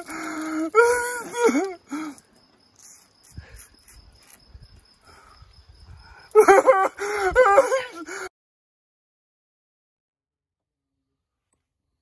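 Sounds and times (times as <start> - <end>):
man's wavering vocal cry: 0.0 - 1.9, 6.4 - 8.1.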